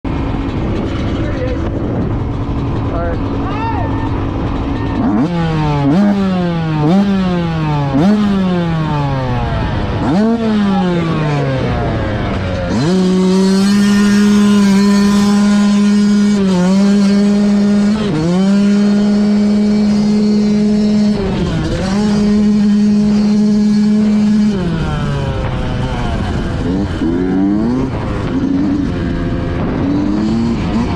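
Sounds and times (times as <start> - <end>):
dirt bike engine revving: 0.1 - 30.9.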